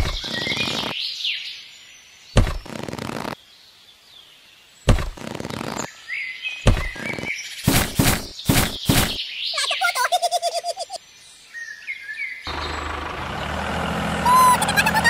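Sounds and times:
birds chirping: 0.0s - 15.0s
sudden thumps: 2.4s - 2.7s, 4.9s - 5.3s, 6.7s - 7.0s.

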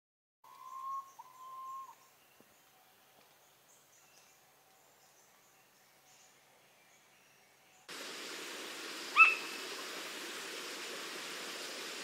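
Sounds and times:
bird whistling call: 0.5s - 2.1s, 9.1s - 9.6s.

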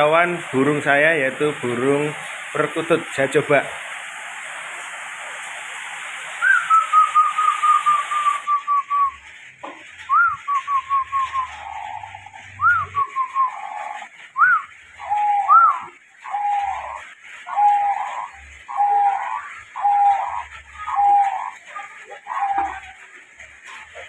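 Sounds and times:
steady hiss: 0.0s - 24.0s
dove cooing: 6.4s - 9.2s, 10.1s - 23.0s.

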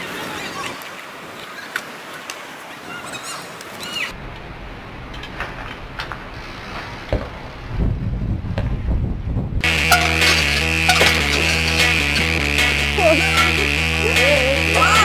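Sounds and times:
birds chirping: 2.7s - 6.8s, 9.6s - 15.0s
bike tyres hopping and landing: 5.2s - 13.6s.

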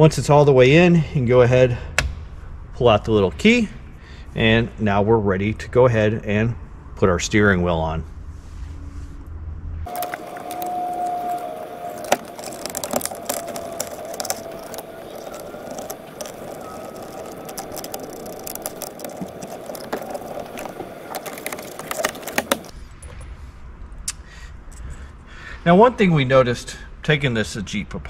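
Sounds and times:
faint whine: 2.2s - 23.5s.

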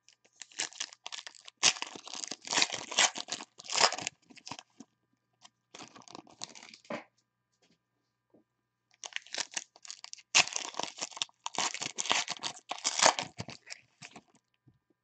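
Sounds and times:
foil wrappers crinkling and tearing: 0.4s - 4.7s, 5.8s - 6.8s, 9.0s - 14.3s.

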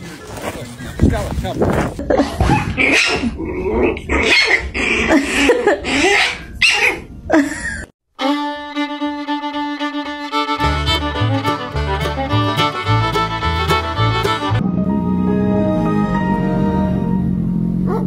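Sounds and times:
puppy yipping and whining: 4.2s - 4.7s, 5.9s - 7.0s
music with sustained strings: 8.2s - 17.5s
bass line: 8.3s - 18.0s.

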